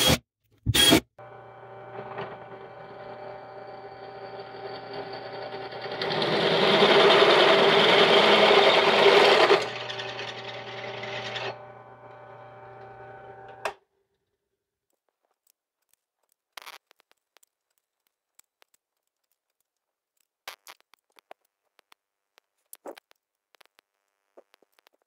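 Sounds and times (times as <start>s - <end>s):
drill bit cutting metal: 0.0s - 13.8s
drill press motor hum: 0.8s - 13.8s
click: 12.8s - 13.8s.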